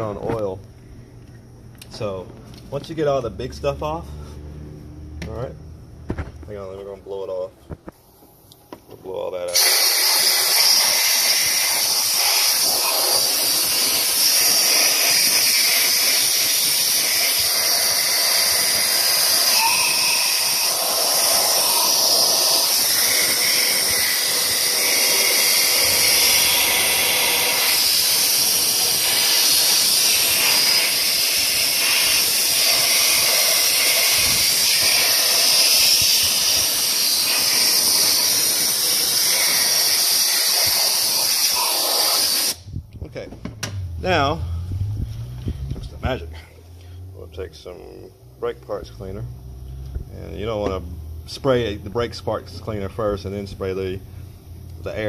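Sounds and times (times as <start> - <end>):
compressed air blow gun hissing: 9.5 - 42.7.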